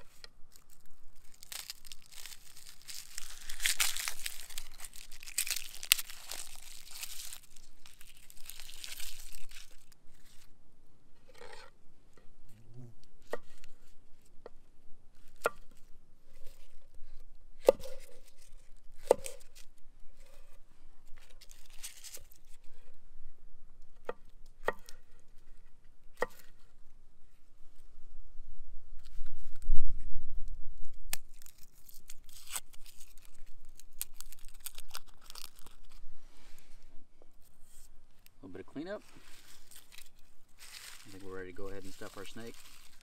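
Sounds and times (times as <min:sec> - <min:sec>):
vegetable skins crinkling and tearing: 0:00.1 - 0:10.5, 0:17.6 - 0:19.8, 0:21.1 - 0:22.7, 0:31.1 - 0:36.0, 0:39.1 - 0:43.0.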